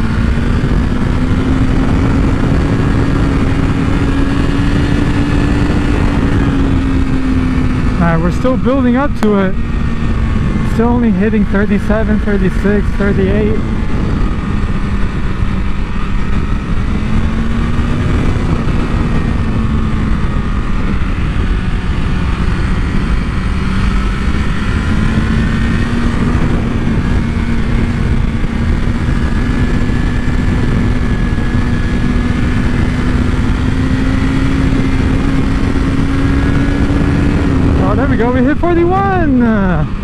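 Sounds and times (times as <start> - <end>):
sport bike engine running: 0.0 - 40.0
wind rush: 0.0 - 40.0.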